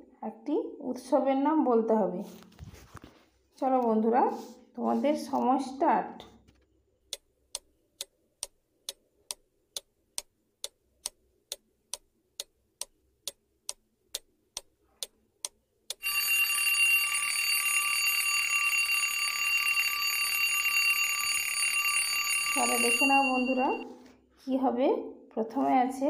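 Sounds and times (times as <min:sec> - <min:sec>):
clock ticking: 0:07.1 - 0:17.2
alarm clock ringing: 0:16.0 - 0:24.0.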